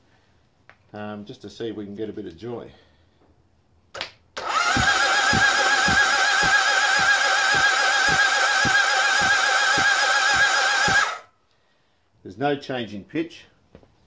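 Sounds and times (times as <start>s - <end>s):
electric starter motor cranking engine: 4.4s - 11.3s.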